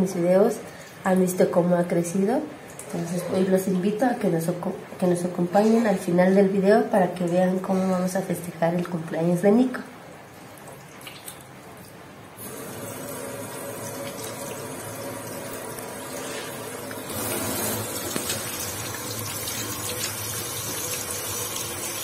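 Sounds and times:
tap water running into sink: 12.4s - 22.0s.

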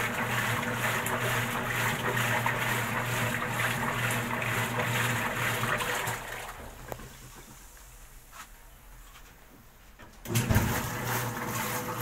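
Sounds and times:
water rushing into washing machine: 0.0s - 7.5s, 10.2s - 12.0s.

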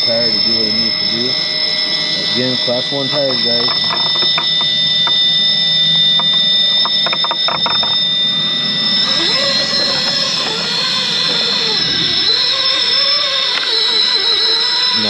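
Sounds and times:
electric drivetrain whining: 0.0s - 15.0s
sharp clicks: 3.1s - 8.1s, 12.6s - 14.9s.

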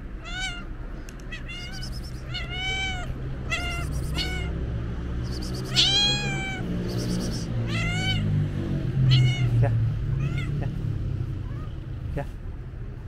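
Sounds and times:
cat meowing: 0.0s - 4.6s, 5.3s - 8.4s, 9.0s - 10.8s, 11.4s - 11.8s.

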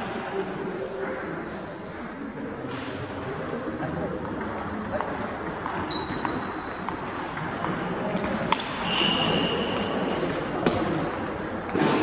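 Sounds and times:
sports hall hum: 0.0s - 12.0s
high squeak: 8.8s - 9.7s.

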